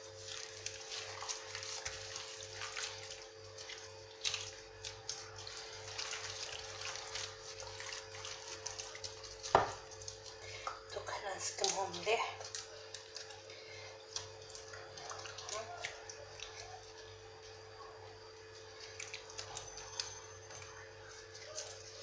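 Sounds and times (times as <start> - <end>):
wet squishing of hands on fish: 0.0 - 22.0.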